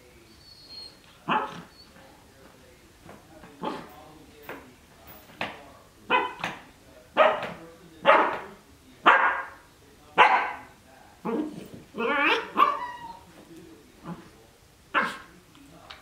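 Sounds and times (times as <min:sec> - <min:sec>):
puppy barking: 0:01.2 - 0:01.7, 0:06.1 - 0:06.6, 0:07.2 - 0:08.4, 0:09.0 - 0:09.6, 0:10.2 - 0:10.7, 0:12.0 - 0:13.2, 0:14.9 - 0:15.3.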